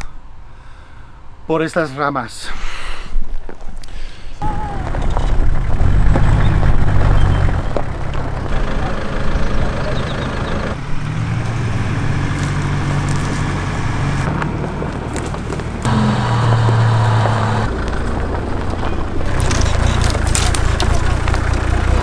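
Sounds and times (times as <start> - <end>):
vehicle engine running low: 4.4 - 22.0
tyre and body noise: 17.1 - 22.0.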